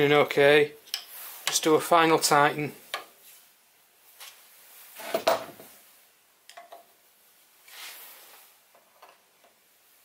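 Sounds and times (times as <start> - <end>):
soft rustle: 1.0 - 1.8, 3.1 - 5.1, 7.3 - 8.8
tool set down on workbench: 5.0 - 5.7.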